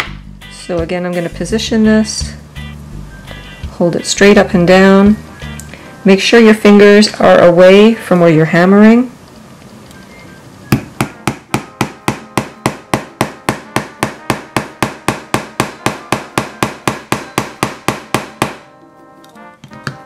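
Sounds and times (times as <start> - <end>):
hammer tapping nails into wood: 10.8 - 18.6.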